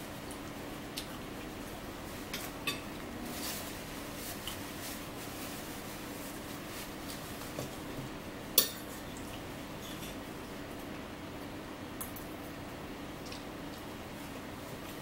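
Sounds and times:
soft chewing: 0:00.2 - 0:03.1, 0:13.2 - 0:15.0.

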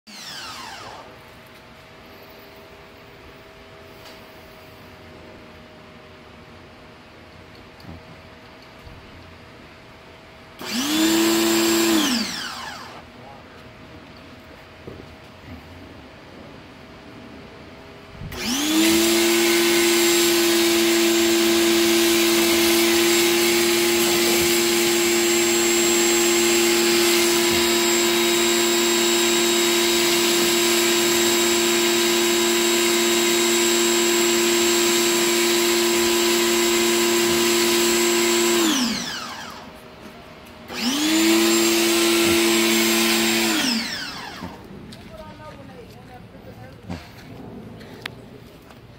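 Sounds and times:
pressure washer motor running: 0:00.1 - 0:01.3, 0:10.6 - 0:13.1, 0:18.3 - 0:44.7.

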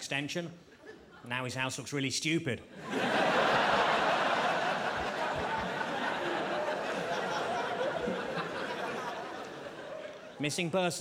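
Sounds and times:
audience laughing: 0:02.8 - 0:10.5.

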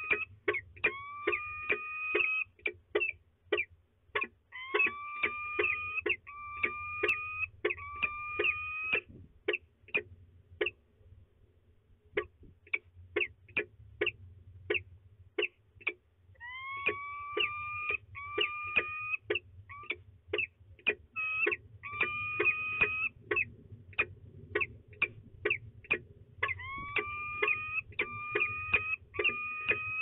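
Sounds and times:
falcons calling: 0:00.0 - 0:02.5, 0:04.5 - 0:09.1, 0:16.4 - 0:23.5, 0:24.6 - 0:30.0.

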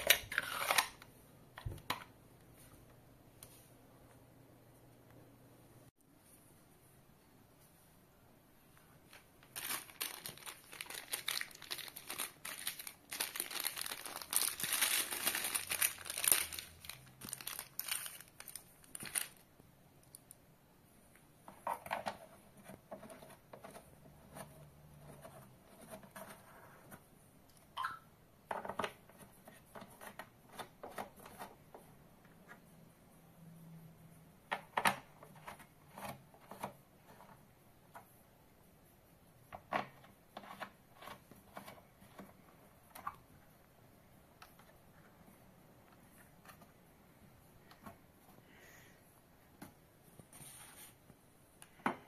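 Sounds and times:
plastic bag crinkling and tearing: 0:09.1 - 0:19.4.

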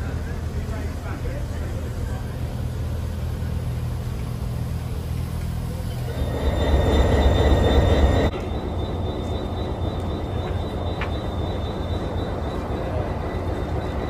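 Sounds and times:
diesel locomotive whine: 0:00.0 - 0:14.0
low train rumble: 0:00.0 - 0:14.0
train coaches rolling: 0:00.0 - 0:14.0
faint high squeal: 0:05.7 - 0:14.0.

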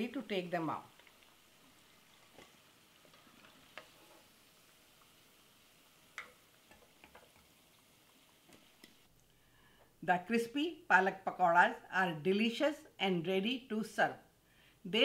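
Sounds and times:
food deep-frying in oil: 0:00.0 - 0:09.1.

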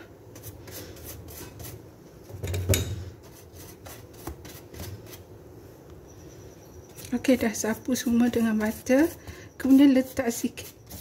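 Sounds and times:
pastry brush rubbing and tapping: 0:06.9 - 0:11.0.

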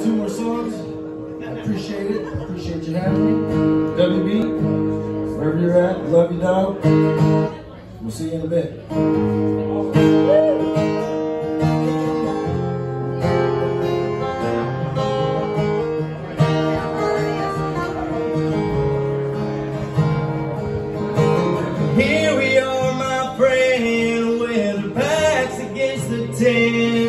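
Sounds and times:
acoustic guitar: 0:00.0 - 0:27.0
man singing: 0:05.4 - 0:06.9, 0:21.8 - 0:27.0.

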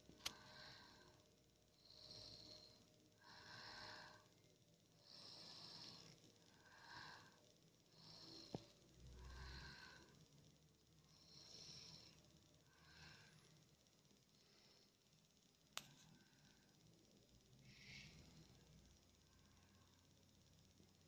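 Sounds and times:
child snoring: 0:05.0 - 0:06.1, 0:06.7 - 0:08.6.

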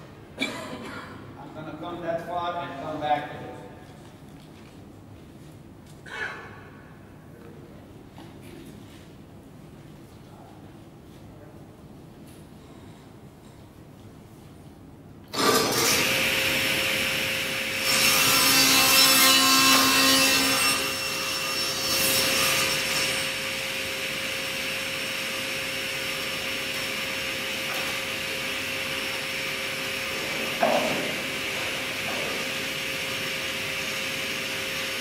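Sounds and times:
saw blade cutting wood: 0:15.3 - 0:35.0.

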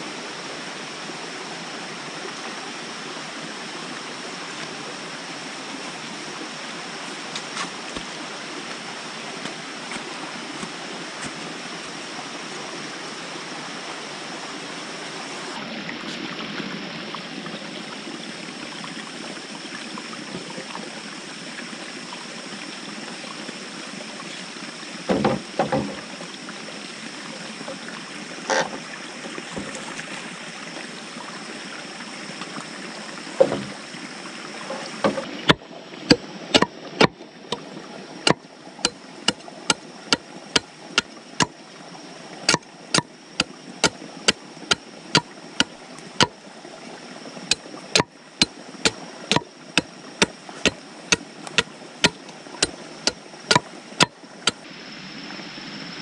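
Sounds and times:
stream running water: 0:00.0 - 0:56.0
bamboo poles knocking: 0:35.1 - 0:37.6, 0:42.5 - 0:43.5, 0:50.2 - 0:52.2, 0:53.0 - 0:54.6
machete chopping into log: 0:36.6 - 0:37.6, 0:50.6 - 0:52.2, 0:53.5 - 0:54.1.

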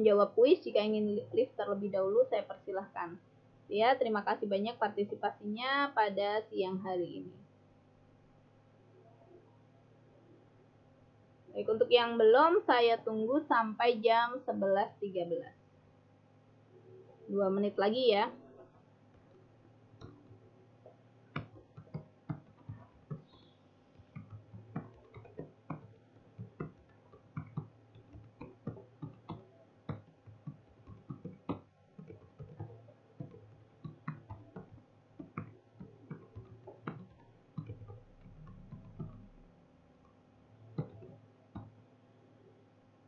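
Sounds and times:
faint keyboard typing: 0:17.9 - 0:42.6.

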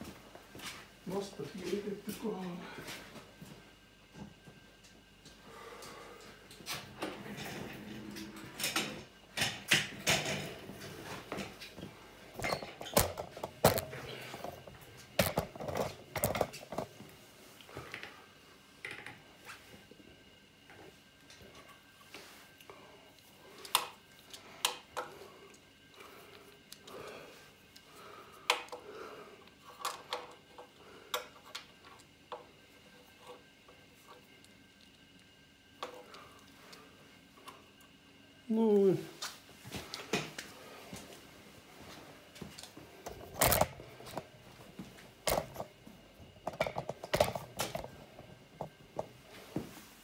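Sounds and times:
clicks and knocks handling parts: 0:12.4 - 0:17.0.

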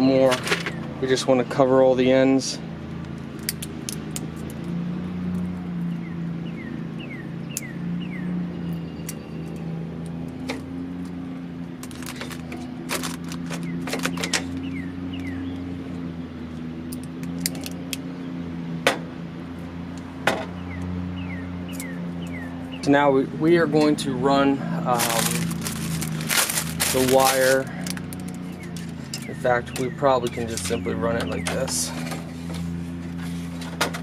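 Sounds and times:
bird chirping: 0:05.4 - 0:18.8, 0:19.8 - 0:32.1
tape and plastic clicks and crinkles: 0:11.8 - 0:14.6, 0:16.6 - 0:18.0, 0:24.9 - 0:29.9.

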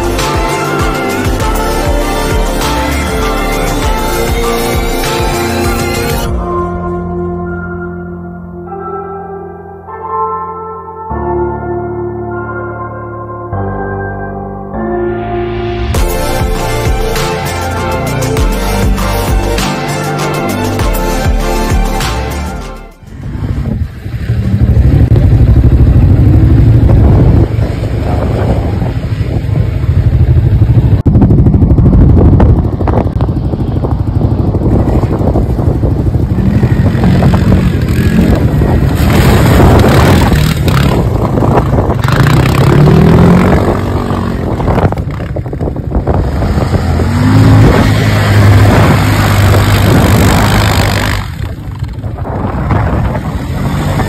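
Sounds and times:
quad bike engine revving: 0:23.2 - 0:54.0.

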